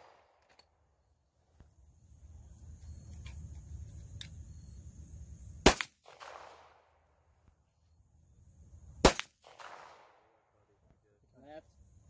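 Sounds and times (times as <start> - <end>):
handgun shots with echo: 5.6 - 6.8, 9.0 - 10.2.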